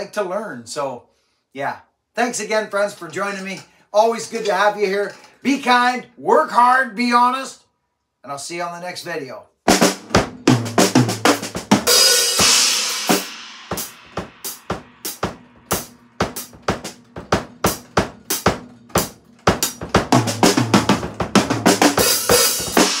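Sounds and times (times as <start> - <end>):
snare and bass drum hits: 9.7 - 23.0
cymbal crash: 11.7 - 23.0.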